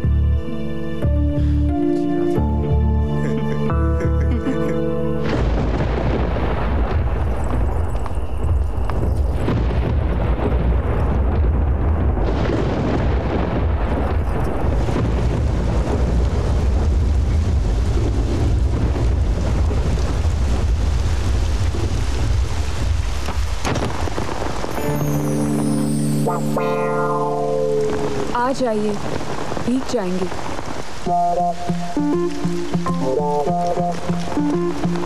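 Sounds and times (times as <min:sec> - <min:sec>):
heavy rain pouring: 0:00.0 - 0:35.0
deep low rumble: 0:05.2 - 0:23.6.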